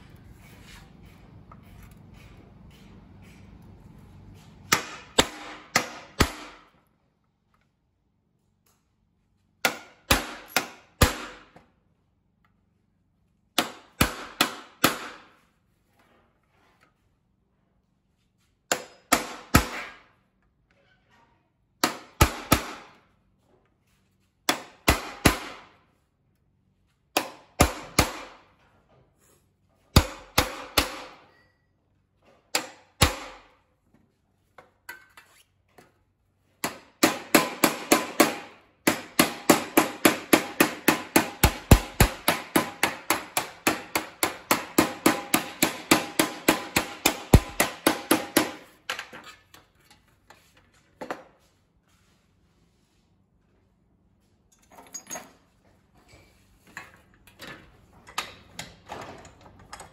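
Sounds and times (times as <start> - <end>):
hammer striking a chisel: 4.4 - 6.7, 9.6 - 11.6, 13.6 - 15.4, 18.6 - 20.1, 21.8 - 23.0, 24.4 - 25.8, 27.1 - 28.5, 29.9 - 31.7, 32.5 - 33.6, 36.6 - 49.1
hammer striking steel panel edge: 4.6 - 6.7, 27.2 - 28.4, 30.0 - 31.4, 32.5 - 33.5, 36.6 - 48.8.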